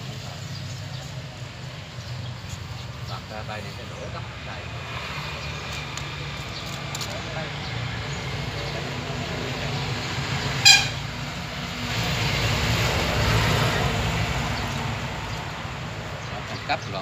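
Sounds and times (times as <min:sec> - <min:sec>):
vehicle passing by: 0:00.1 - 0:17.0
vehicle horn beep: 0:10.6 - 0:11.1.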